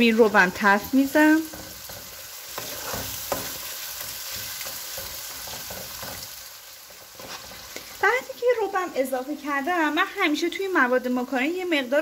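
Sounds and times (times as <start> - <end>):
wooden spoon scraping a pan: 0.0 - 8.0
meat sizzling in a frying pan: 0.0 - 12.0.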